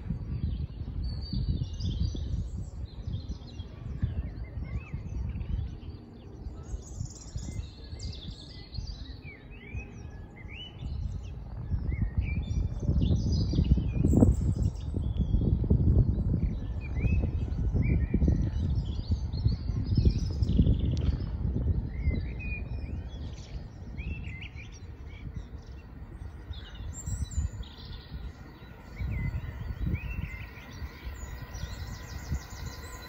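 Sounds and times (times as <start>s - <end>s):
songbirds singing: 0.0s - 33.0s
low uneven rumbling: 15.5s - 33.0s.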